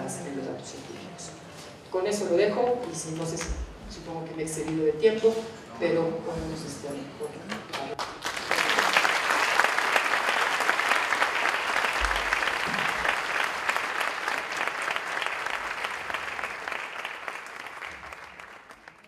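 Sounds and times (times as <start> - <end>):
audience applauding: 7.9 - 19.0.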